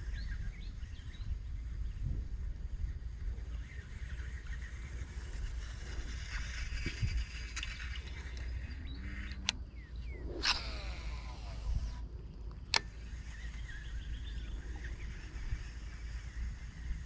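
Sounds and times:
faint bird chirps: 0.0 - 12.0, 12.8 - 17.0
low outdoor rumble: 0.0 - 17.0
light click: 12.5 - 12.9.

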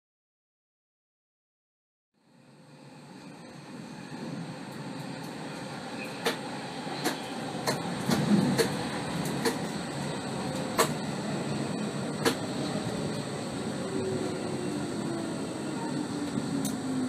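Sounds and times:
train rolling rumble in tunnel: 2.2 - 17.0
wheels clacking on track: 4.7 - 14.7.

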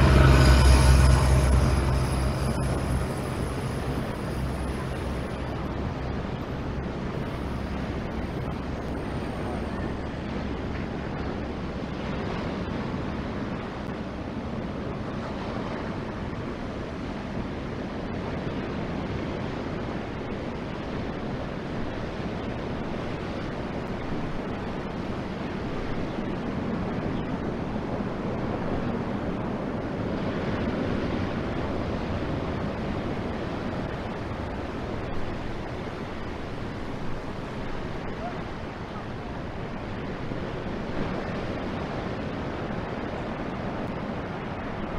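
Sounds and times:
surf breaking on shore: 0.0 - 44.9
wind on microphone: 0.0 - 44.9.

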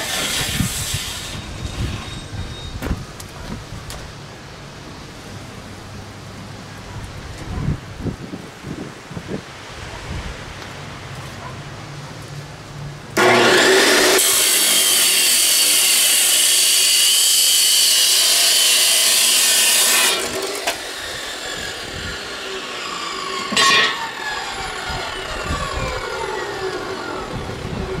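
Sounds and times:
chop saw grinding through steel: 0.0 - 2.4, 13.2 - 27.3
saw wheel spinning down: 13.2 - 28.0.

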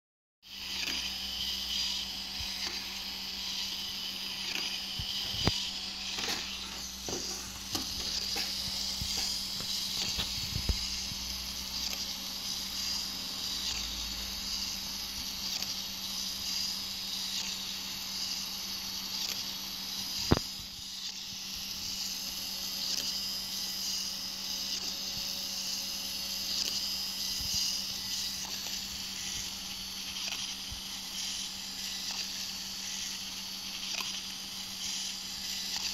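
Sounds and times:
small gear motor whining: 0.4 - 35.9.

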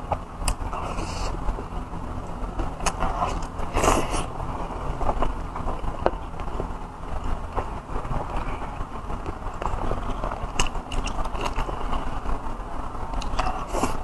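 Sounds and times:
steady low hum: 0.0 - 14.0
chewing and wet mouth sounds: 2.6 - 4.3, 8.3 - 12.2, 13.2 - 14.0.

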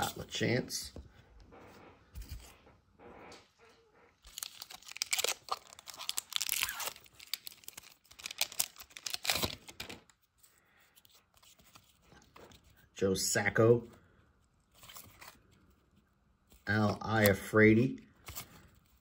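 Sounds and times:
foil wrapper tearing and crinkling: 4.3 - 10.0.

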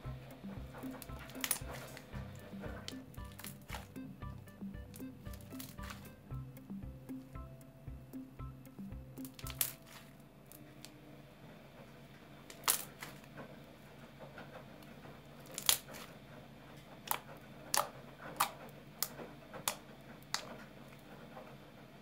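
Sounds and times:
slime popping and clicking: 9.2 - 10.0, 15.5 - 16.0, 17.0 - 20.5.

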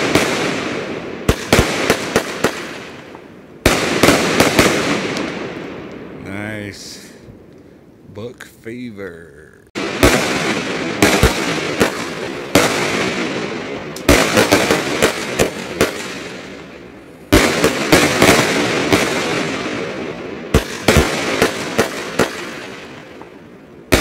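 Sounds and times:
fireworks bangs: 0.0 - 7.4, 9.7 - 24.0.

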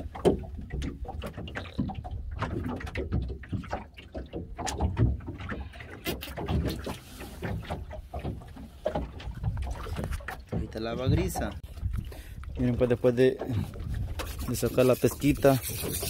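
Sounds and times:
wind and water against hull: 0.0 - 16.0.

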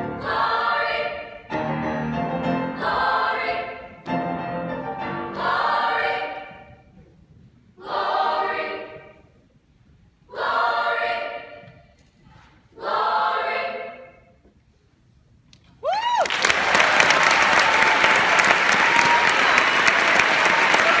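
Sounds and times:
choir singing chords: 0.0 - 6.9, 7.8 - 9.4, 10.2 - 11.8, 12.7 - 14.4
audience whoop: 15.8 - 21.0
loud applause: 15.8 - 21.0.

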